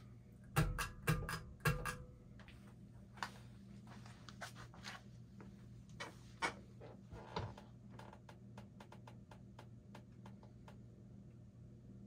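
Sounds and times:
ceiling fan motor hum: 0.0s - 12.0s
fan clicking and ticking: 0.4s - 2.2s, 7.6s - 10.9s.

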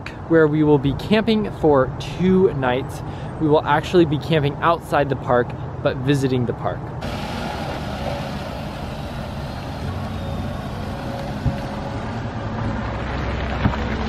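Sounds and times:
car engine idling: 7.0s - 13.5s.

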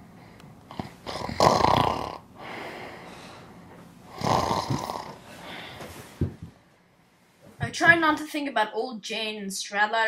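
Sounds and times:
person snoring: 0.7s - 3.1s, 4.1s - 5.7s.

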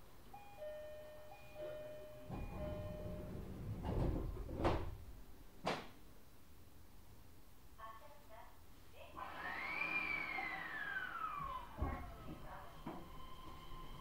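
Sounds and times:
falling two-note door chime: 0.3s - 3.4s
sliding doors thudding shut: 2.3s - 5.9s, 11.4s - 14.0s.

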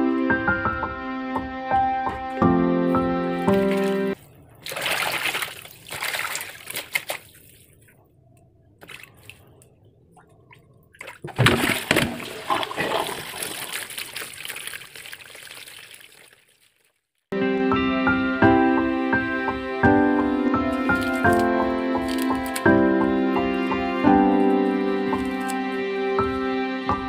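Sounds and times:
water splashing in plastic basin: 3.4s - 8.0s, 8.8s - 17.0s, 20.8s - 22.9s, 25.0s - 25.7s
water trickling: 3.4s - 8.0s, 8.8s - 17.1s, 20.8s - 22.9s, 23.6s - 25.8s.

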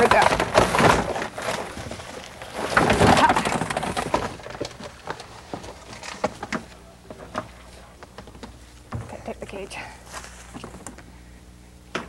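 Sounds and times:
paper bedding rustling and crackling: 0.0s - 6.6s, 10.0s - 10.8s.

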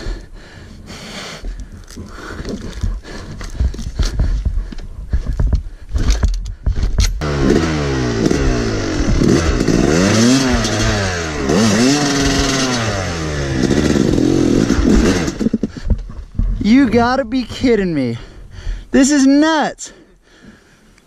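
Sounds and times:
knocking and scraping: 1.4s - 7.2s, 14.8s - 17.6s
dirt bike engine revving: 6.7s - 16.6s.

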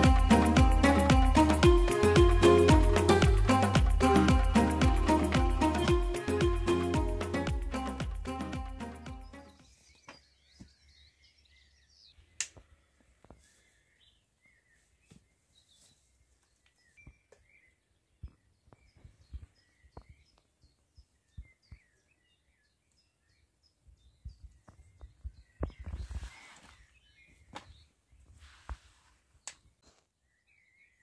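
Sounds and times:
birds chirping: 0.0s - 28.4s.

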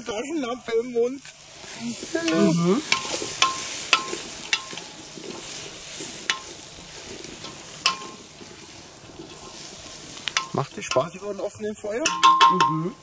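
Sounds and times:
vegetables sizzling in a pot: 0.0s - 13.0s
stirring tool clinking on pot: 2.2s - 13.0s.

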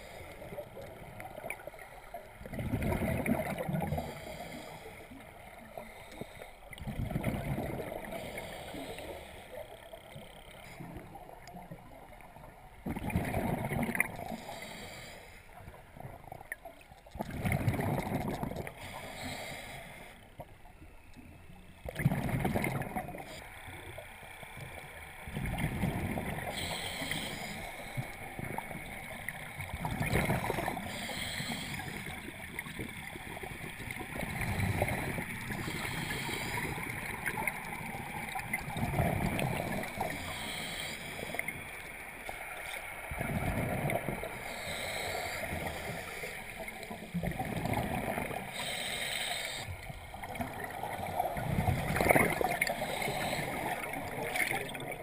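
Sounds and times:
exhaled bubbles gurgling underwater: 0.0s - 9.3s, 10.1s - 24.0s, 24.6s - 55.0s
regulator hissing inhalations: 4.0s - 5.2s, 14.3s - 15.5s, 18.8s - 20.2s, 26.5s - 28.0s, 30.8s - 32.3s, 35.6s - 36.9s, 40.1s - 41.4s, 44.4s - 46.8s, 48.4s - 49.9s, 52.6s - 53.9s.

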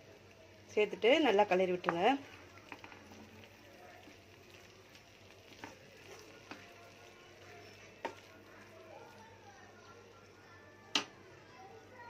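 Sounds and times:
spatula stirring in a pan: 0.9s - 10.0s.

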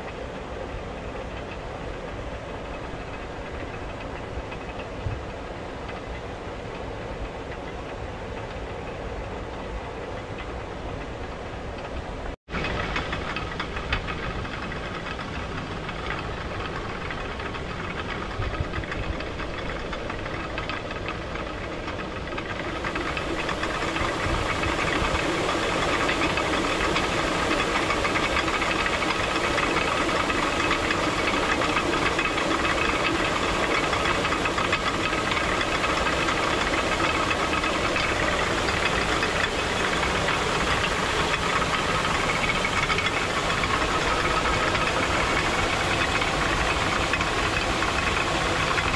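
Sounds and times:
water mill turning: 0.0s - 48.9s
rushing water: 22.4s - 48.9s.

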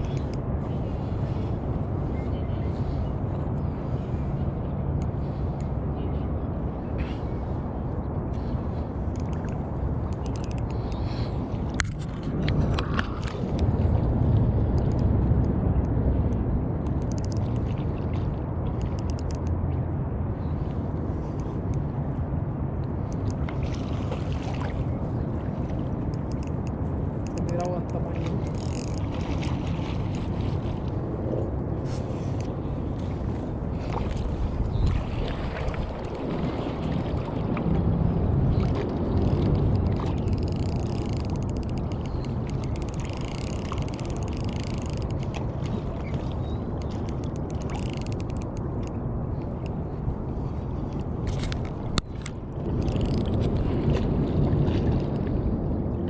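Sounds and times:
wind buffeting microphone: 0.0s - 56.0s
small waves lapping: 23.0s - 26.3s, 26.9s - 48.3s
fishing reel click: 40.3s - 45.2s.

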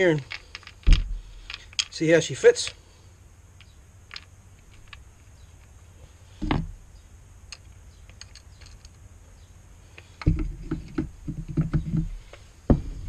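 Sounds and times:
dull knocks and bumps: 0.8s - 1.3s, 6.4s - 6.7s, 10.2s - 13.0s.

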